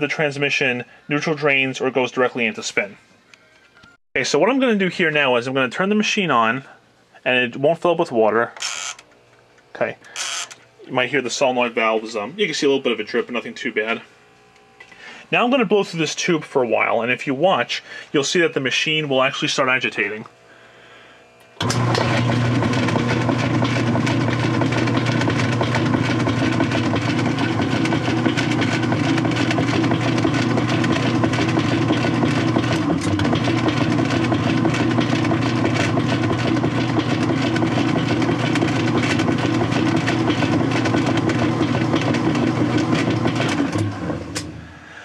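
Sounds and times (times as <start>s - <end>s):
washing machine agitating: 21.6s - 44.9s.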